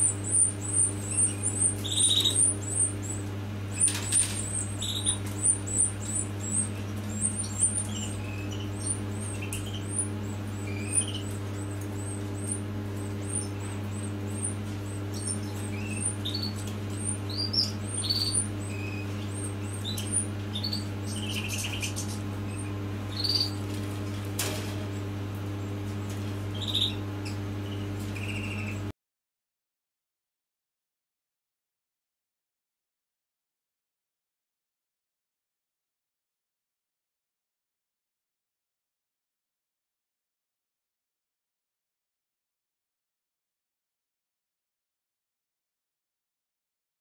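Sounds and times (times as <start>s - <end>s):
electrical hum: 0.0s - 28.9s
lower bird calls: 0.0s - 28.9s
nestlings cheeping: 0.0s - 28.9s.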